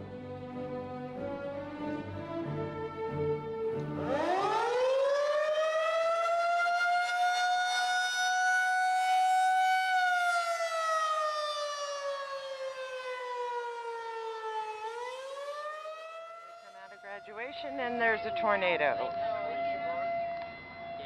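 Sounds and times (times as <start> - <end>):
outdoor warning siren: 0.0 - 21.0.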